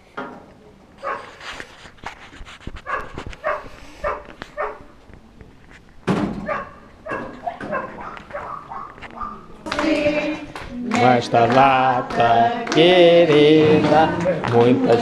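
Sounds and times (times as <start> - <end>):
dog barking: 1.0 - 1.4, 2.8 - 4.9, 6.4 - 9.5.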